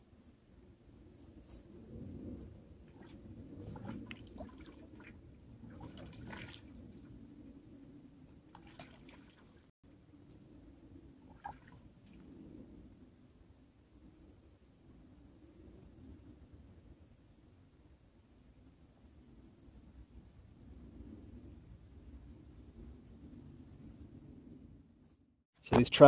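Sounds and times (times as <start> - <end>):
water splashing in metal bucket: 2.9 - 6.8, 8.5 - 9.7.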